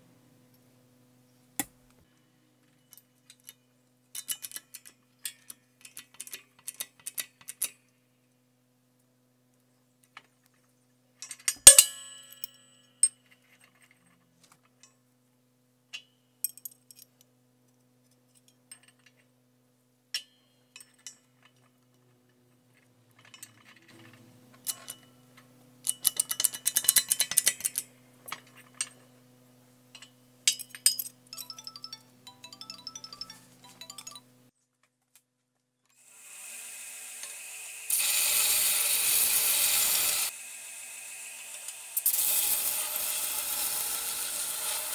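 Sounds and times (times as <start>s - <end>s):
steel parts clinking: 2.6s - 7.8s, 11.2s - 15.0s, 16.0s - 17.2s, 20.1s - 29.1s, 29.9s - 34.3s
belt grinder running: 36.3s - 44.9s.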